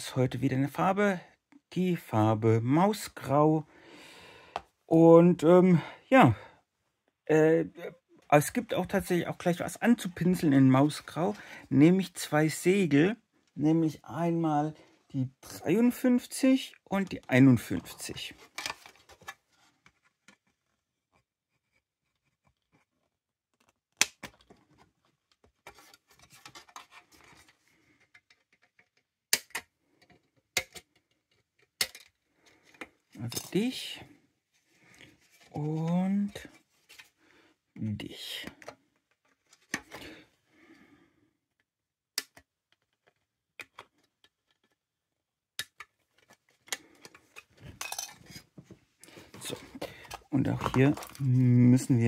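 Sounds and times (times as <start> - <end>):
plastic frame rustling and rattling: 17.5 - 20.8, 24.3 - 29.1, 45.8 - 51.6
sharp plastic clicks: 29.3 - 29.7, 42.2 - 42.5.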